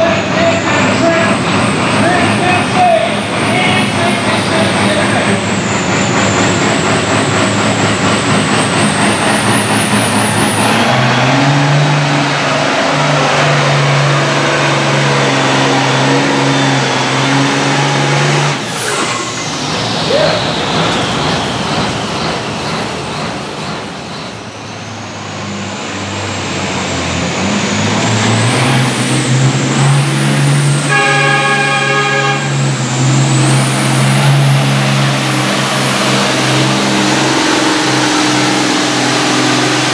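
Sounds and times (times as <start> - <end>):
tractor diesel engine revving: 0.0 - 39.9
horn toot: 30.8 - 32.7
falling turbo whistle: 30.9 - 32.6.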